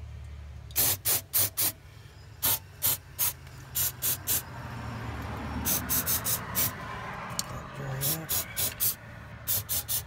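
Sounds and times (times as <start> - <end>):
aerosol spray hissing: 5.7 - 6.7, 8.0 - 10.0.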